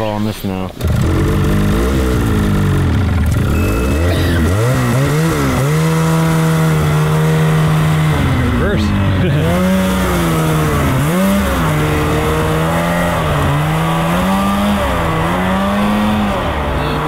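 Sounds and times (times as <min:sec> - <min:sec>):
snowmobile engine revving: 0:00.8 - 0:17.0.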